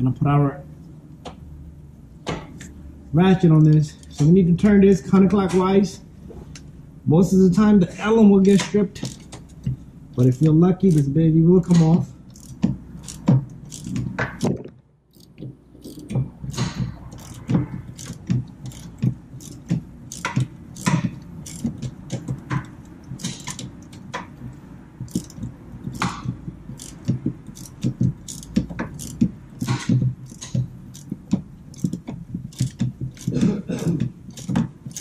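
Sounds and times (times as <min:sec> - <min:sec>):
socket ratchet clicking: 0:08.5 - 0:35.0.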